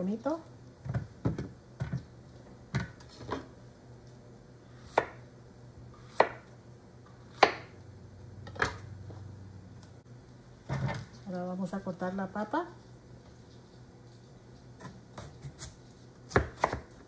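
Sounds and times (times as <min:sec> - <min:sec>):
knife chopping on plastic board: 0:04.9 - 0:05.2, 0:06.0 - 0:06.5, 0:07.3 - 0:07.7, 0:16.3 - 0:17.0.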